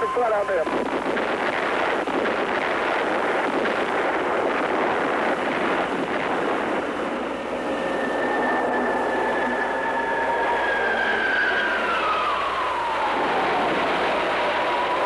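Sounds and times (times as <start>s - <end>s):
jet aircraft rushing: 0.0s - 15.0s
high tone sliding down: 7.5s - 12.5s.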